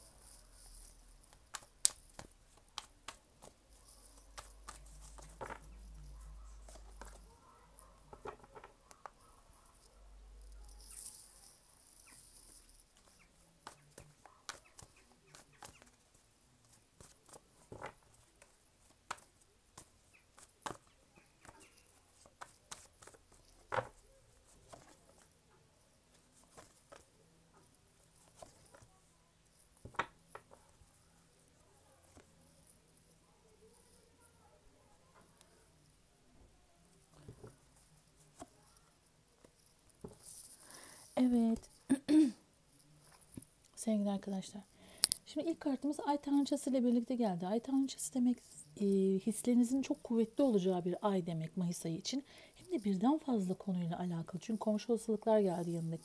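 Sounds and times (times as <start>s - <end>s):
cards tapping and sliding on table: 4.3s - 5.7s, 29.8s - 30.6s.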